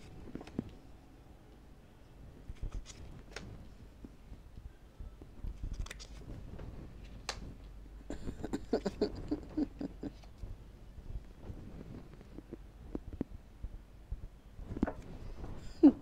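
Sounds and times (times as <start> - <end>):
cards snapping and slapping: 2.5 - 3.5, 5.6 - 6.3.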